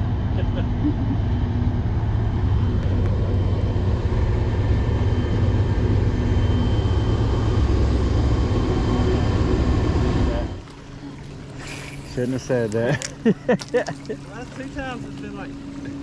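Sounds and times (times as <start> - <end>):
diesel locomotive engine rumble: 0.0 - 16.0.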